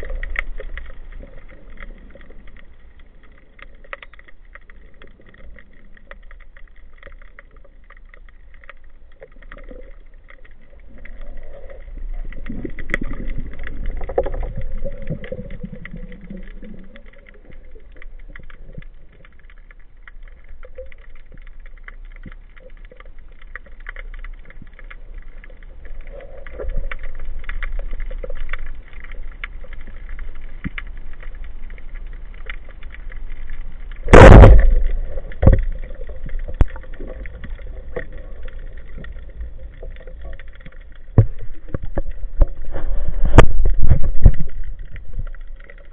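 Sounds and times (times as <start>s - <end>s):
low underwater rumble: 0.0s - 45.9s
underwater crackle of clicks: 0.0s - 45.9s.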